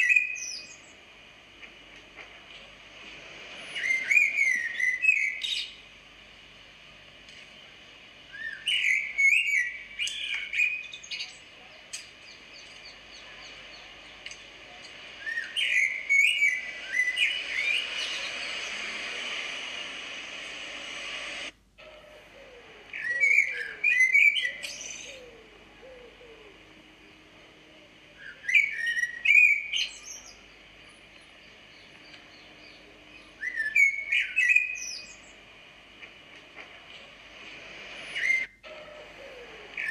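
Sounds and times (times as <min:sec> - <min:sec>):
steady hiss: 0:00.0 - 0:09.2, 0:09.8 - 0:23.0, 0:34.7 - 0:39.9
high twittering chirps: 0:08.3 - 0:19.4.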